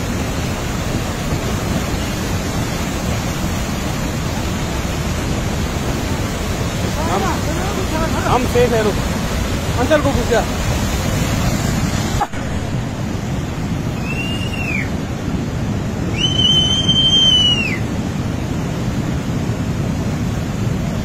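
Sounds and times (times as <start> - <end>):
flash flood rushing roar: 0.0 - 21.0
high whistles: 14.0 - 14.9, 16.1 - 17.9.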